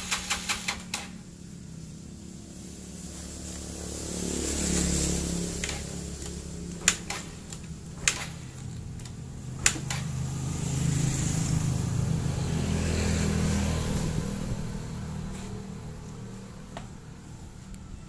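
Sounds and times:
engine turning over: 0:00.0 - 0:01.3, 0:03.3 - 0:11.8.

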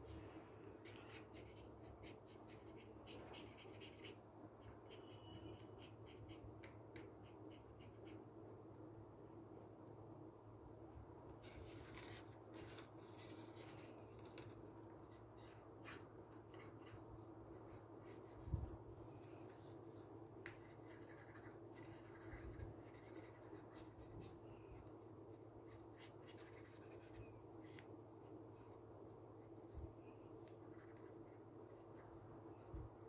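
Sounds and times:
marker pen scratching on paper: 0:00.8 - 0:08.2, 0:20.4 - 0:27.9, 0:30.4 - 0:32.1.

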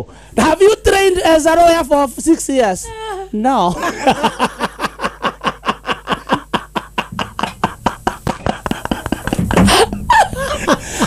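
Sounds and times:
person laughing: 0:02.9 - 0:11.0.

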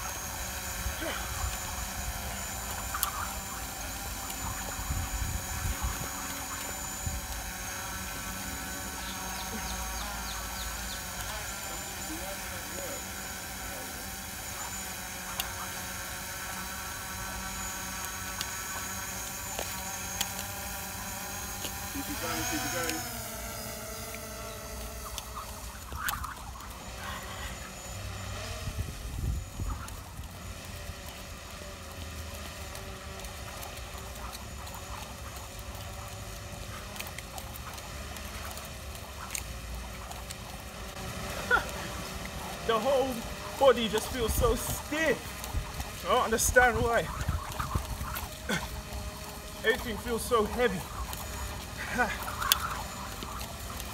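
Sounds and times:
steady hum and hiss: 0:00.0 - 0:53.9
jump rope slapping concrete: 0:00.3 - 0:23.1.

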